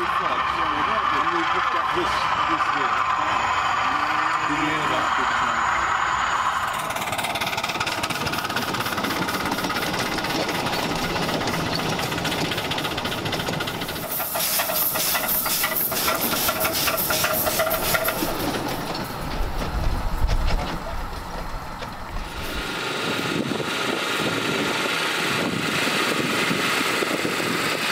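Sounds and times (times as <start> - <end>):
steam hissing: 0.0 - 19.3
steam locomotive exhaust chuffing: 0.0 - 27.9
train running on rails: 0.0 - 27.9.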